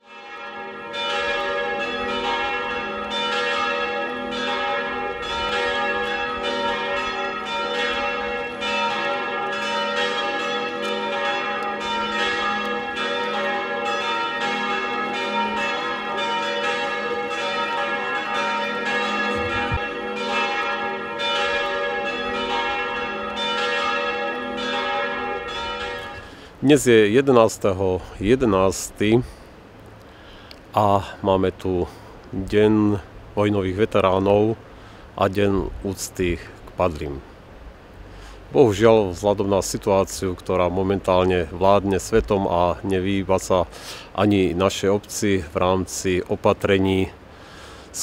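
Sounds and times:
church bells ringing: 0.0s - 28.9s.

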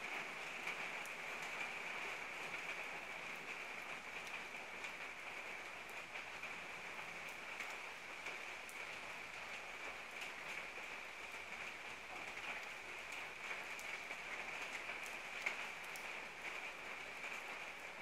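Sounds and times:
steady rain hiss: 0.0s - 18.0s
raindrop ticks: 12.1s - 17.5s.

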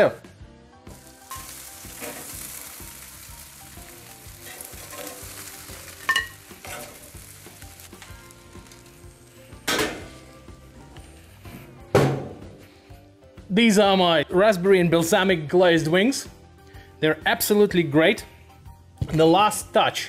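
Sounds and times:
chicken wings sizzling on grill: 0.8s - 11.8s
metal tongs lifting food: 4.4s - 7.3s.

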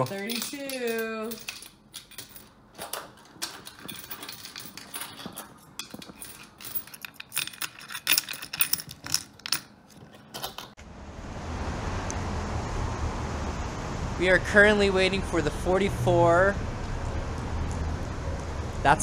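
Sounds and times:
coins clinking: 0.0s - 10.8s
street traffic noise: 9.0s - 19.0s.

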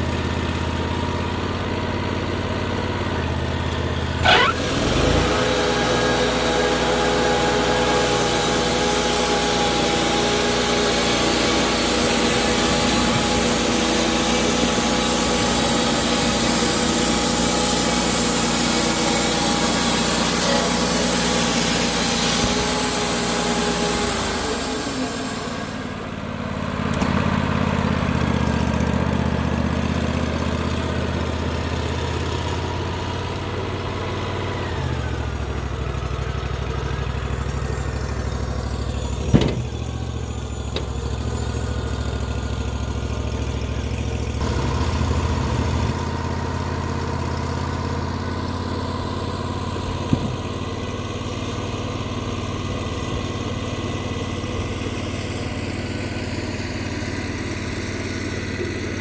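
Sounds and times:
sawmill engine running: 0.0s - 59.0s
sharp clunk: 39.2s - 39.8s.

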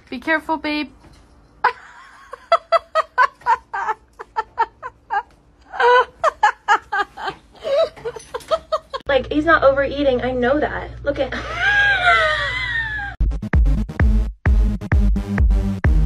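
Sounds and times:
person giggling: 1.6s - 9.0s, 11.3s - 13.2s.

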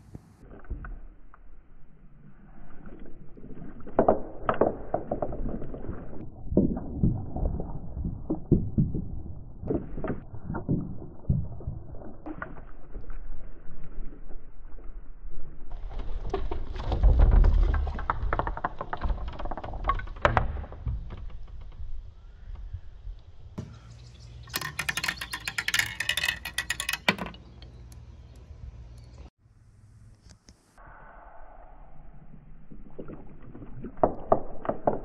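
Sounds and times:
marbles rolling on wooden tracks: 15.8s - 22.1s, 24.4s - 28.0s
marbles clicking together: 24.5s - 28.0s.

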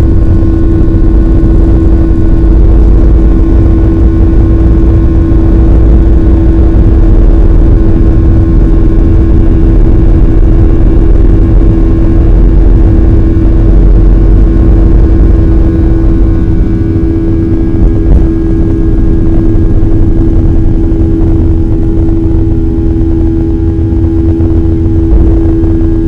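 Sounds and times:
jet engines roaring at takeoff: 0.0s - 26.0s.

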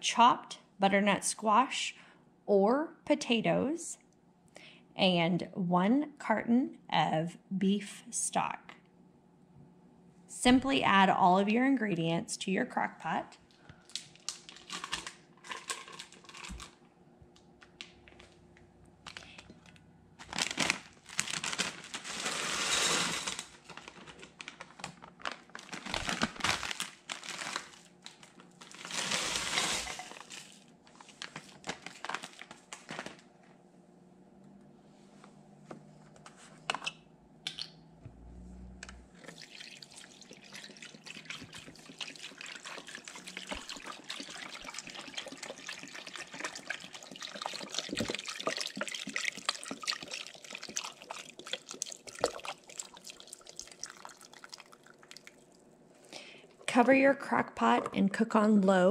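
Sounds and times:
plastic packaging crinkling: 13.8s - 16.8s, 19.0s - 33.3s, 39.2s - 55.5s
frozen vegetables spilling: 13.9s - 16.8s, 20.2s - 33.2s
stock pouring into pot: 22.0s - 23.6s, 28.7s - 30.6s, 39.2s - 55.5s.

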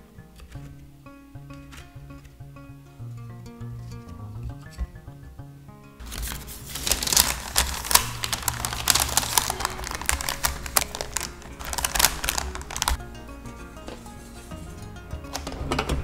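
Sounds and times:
baking paper crinkling: 6.0s - 13.0s.

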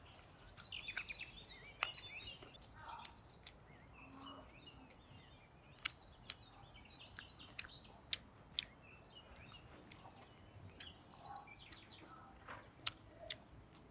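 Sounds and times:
faint bird chirps: 0.0s - 13.5s
wet chewing clicks and smacks: 0.0s - 13.9s.

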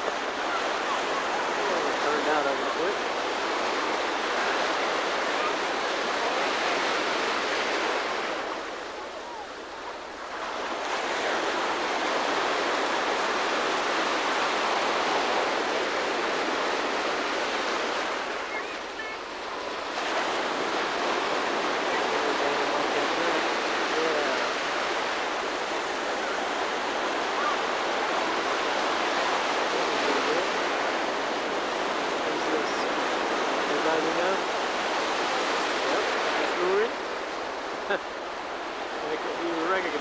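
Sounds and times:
ocean surf breaking: 0.0s - 40.0s.

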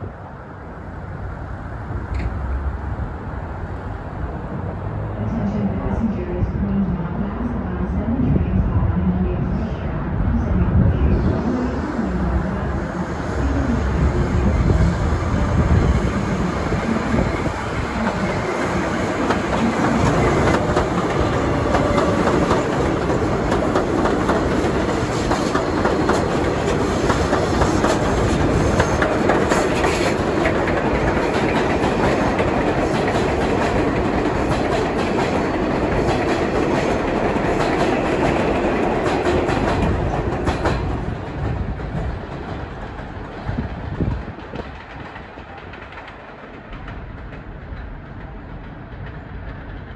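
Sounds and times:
train wheels rumbling on rail: 0.0s - 49.9s
clickety-clack over rail joints: 16.6s - 49.9s.

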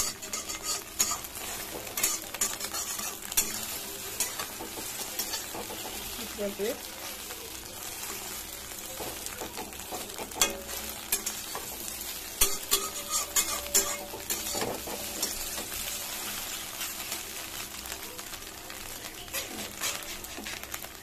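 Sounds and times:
spatula clinking against pan: 0.0s - 6.0s, 8.9s - 15.8s
metal spatula scraping pan: 0.0s - 6.3s, 9.0s - 17.2s, 19.3s - 21.0s
egg sizzling in oil: 0.0s - 21.0s.

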